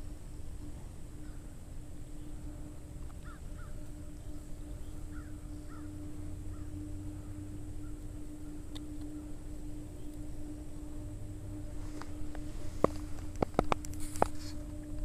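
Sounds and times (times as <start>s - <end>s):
low rumble with steady hum: 0.0s - 15.0s
faint short bird calls: 3.2s - 8.0s.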